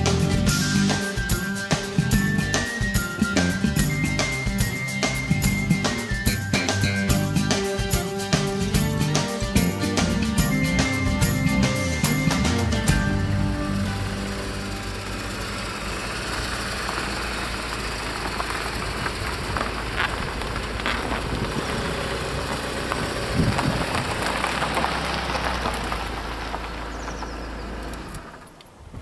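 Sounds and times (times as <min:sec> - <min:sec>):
car engine running: 0:00.0 - 0:28.6
tyres crunching over gravel: 0:00.0 - 0:28.6
stones cracking: 0:16.8 - 0:27.3.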